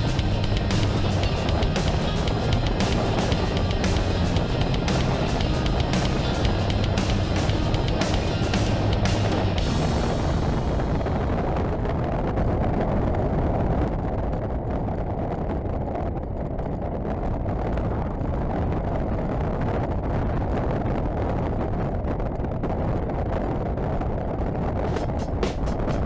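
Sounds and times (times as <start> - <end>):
motorcycle engine running: 0.0 - 11.1
wind rushing over microphone: 0.0 - 26.0.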